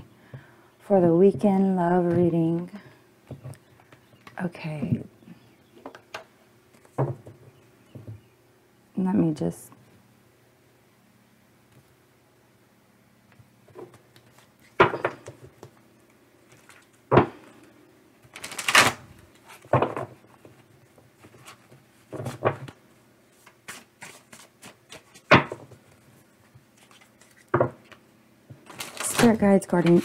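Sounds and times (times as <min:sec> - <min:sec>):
cards clacking and slapping: 0:23.4 - 0:25.7.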